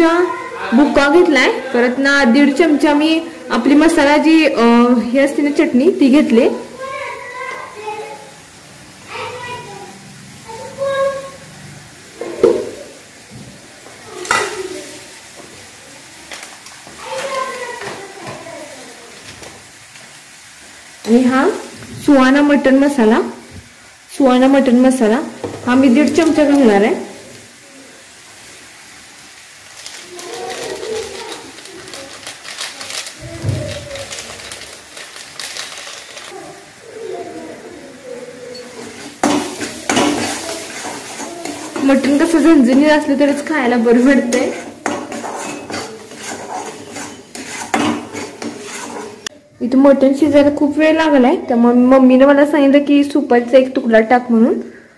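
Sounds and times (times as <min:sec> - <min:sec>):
oil sizzling softly: 0:00.0 - 0:54.8
spoon knocking metal pan: 0:14.2 - 0:14.6, 0:44.2 - 0:49.0
metal spoon scraping pan: 0:38.5 - 0:49.3.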